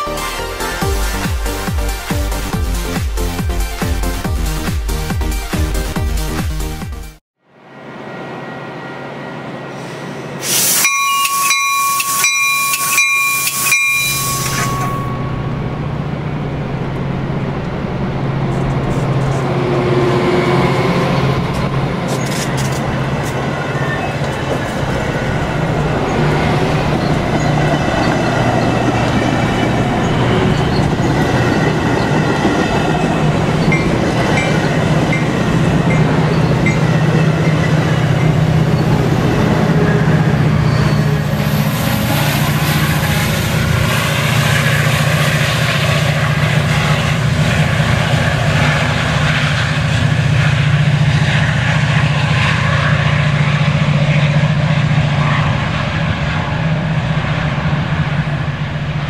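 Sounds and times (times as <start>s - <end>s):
low diesel locomotive drone: 0.0s - 59.0s
train wheels rumbling on rails: 9.6s - 59.0s
pulsing ringing tone: 10.8s - 18.6s.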